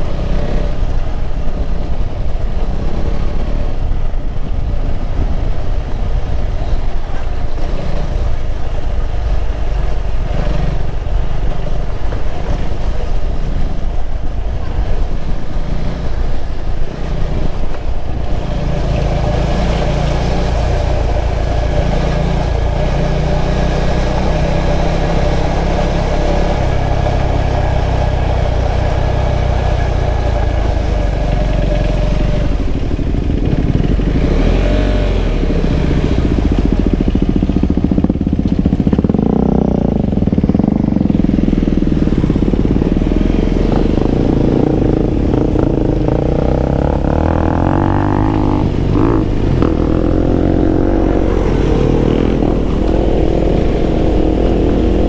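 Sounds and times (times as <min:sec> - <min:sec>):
motorcycle engine running: 0:00.0 - 0:55.0
wind rumble on microphone: 0:00.0 - 0:55.0.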